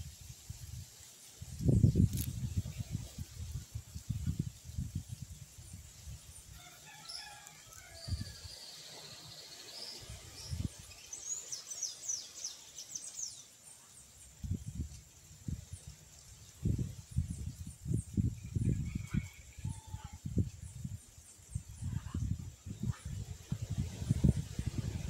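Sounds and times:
wind buffeting microphone: 0.0s - 6.3s, 10.0s - 11.0s, 14.4s - 25.0s
birds chirping and trilling: 5.6s - 14.8s.

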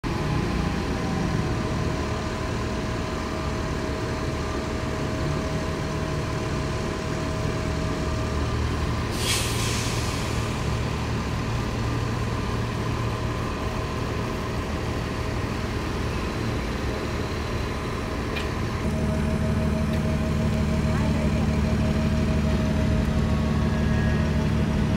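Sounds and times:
bus engine idling: 0.0s - 24.9s
air brakes hissing: 9.0s - 10.9s.

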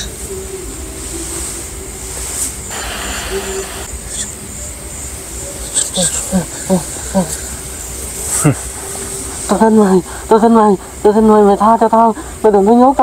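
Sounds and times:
high insect drone: 0.0s - 13.0s
short falling hoot-like calls: 2.7s - 4.3s.

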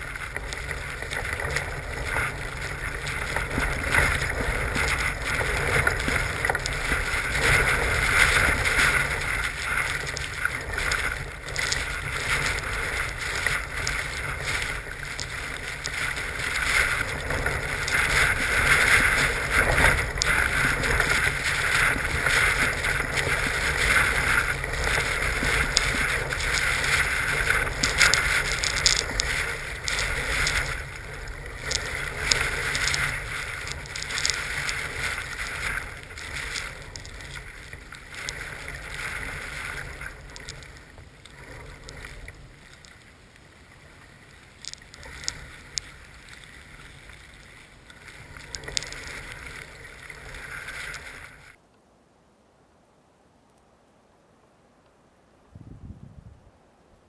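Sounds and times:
gusty wind on microphone: 55.5s - 56.6s.

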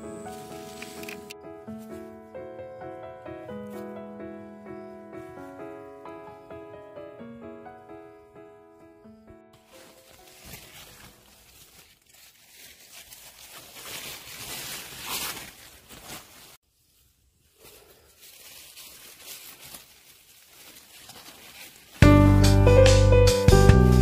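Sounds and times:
leaves and stems rustling: 0.0s - 2.1s, 9.6s - 22.1s
music: 0.0s - 10.6s, 22.0s - 24.0s.

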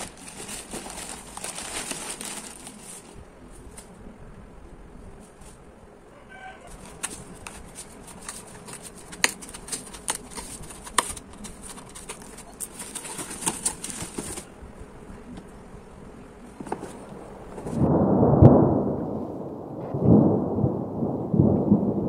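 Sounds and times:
packaging crackling and ripping: 0.0s - 3.9s, 6.4s - 14.5s
packaging rustling and crinkling: 0.0s - 4.0s, 6.4s - 14.5s, 16.6s - 17.9s.

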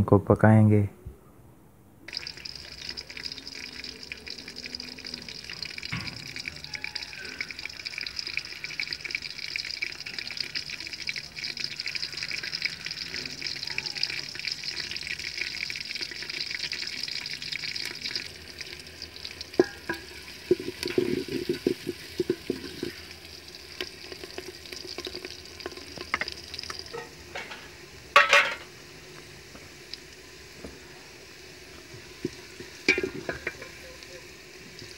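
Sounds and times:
onions sizzling in hot fat: 2.1s - 34.9s
knocks on pot: 32.9s - 33.8s.

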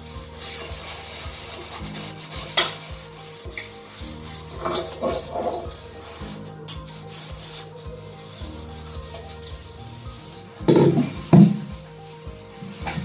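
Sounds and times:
pot being scrubbed: 0.0s - 13.0s
pot knocking and clattering: 10.6s - 11.8s.

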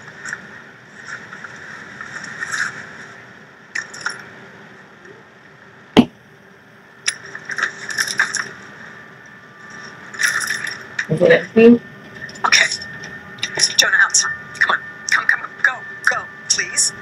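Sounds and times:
quiet drama soundtrack: 6.0s - 17.0s.

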